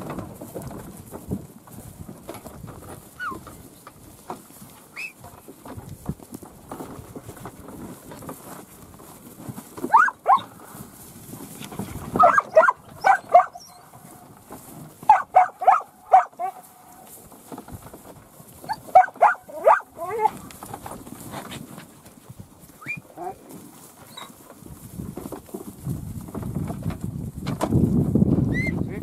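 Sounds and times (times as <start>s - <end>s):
dog barking: 9.9s - 10.4s, 12.2s - 13.8s, 15.1s - 16.6s, 18.9s - 20.3s.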